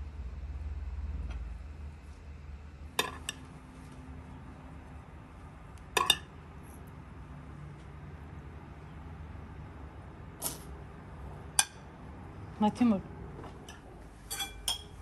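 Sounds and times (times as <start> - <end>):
spoon clinking on plate: 13.7 - 15.0.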